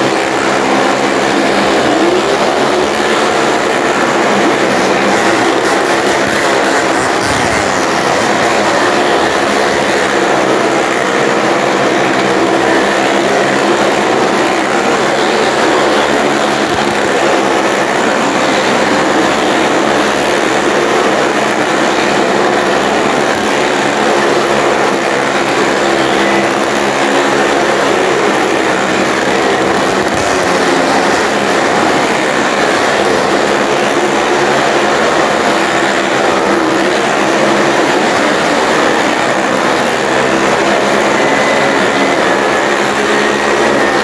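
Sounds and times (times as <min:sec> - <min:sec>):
motorcycle engines droning: 0:00.0 - 0:44.0.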